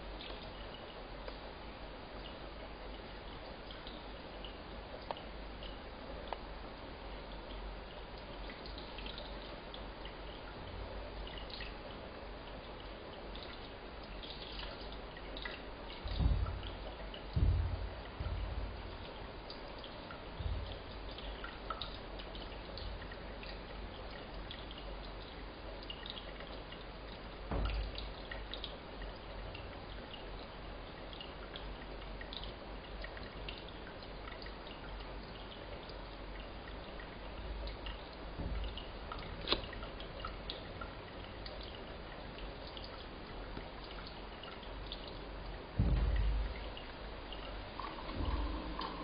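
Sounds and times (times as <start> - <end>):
water dripping: 0.0 - 49.0
low rumble: 48.1 - 49.0.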